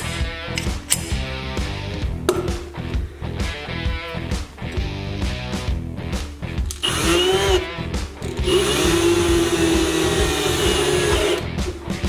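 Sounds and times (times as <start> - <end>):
background music: 0.0 - 12.0
cordless drill running: 6.8 - 7.7, 8.3 - 11.5.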